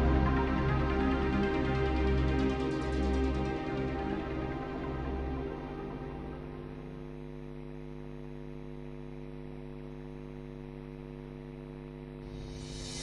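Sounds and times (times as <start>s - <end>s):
electrical mains hum: 3.5s - 13.0s.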